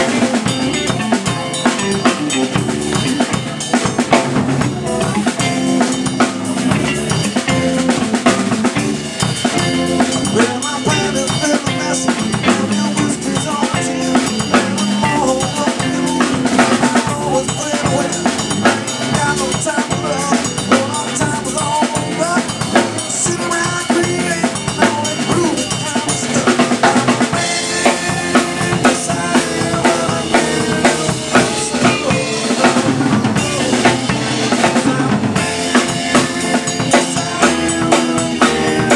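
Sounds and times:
drum kit beat: 0:00.0 - 0:38.9
live rock band playing: 0:00.0 - 0:38.9
person singing into microphone: 0:10.2 - 0:38.9.

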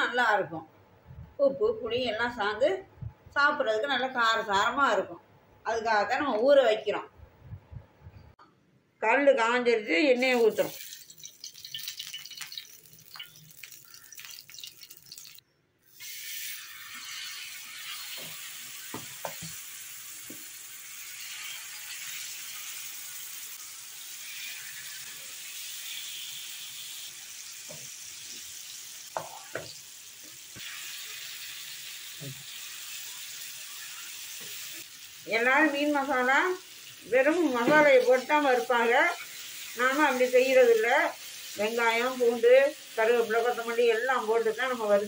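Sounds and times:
oil poured onto hot griddle: 0:10.3 - 0:15.4
fish sizzling in oil: 0:10.3 - 0:45.0.

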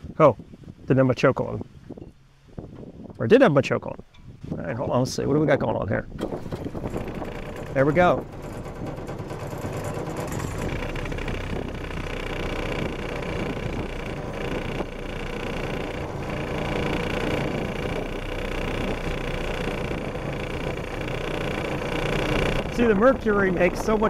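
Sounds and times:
outboard motor running: 0:06.0 - 0:24.0.

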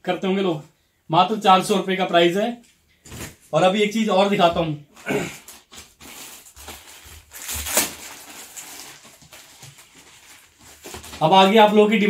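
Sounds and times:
clothing packaging rustling: 0:04.2 - 0:12.0.

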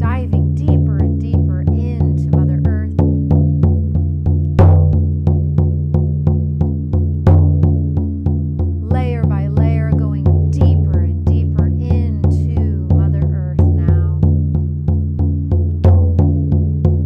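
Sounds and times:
frame drum beating: 0:00.0 - 0:17.0.

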